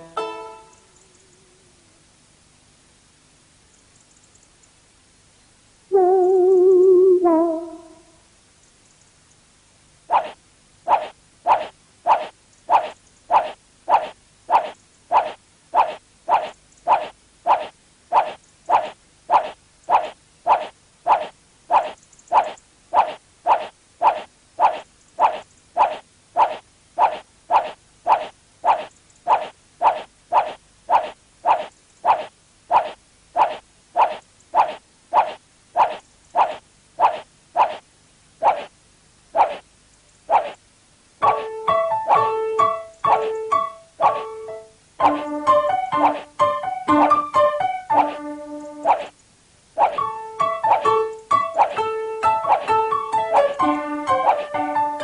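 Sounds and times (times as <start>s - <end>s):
keyboard music: 0.0s - 0.9s, 5.9s - 8.0s.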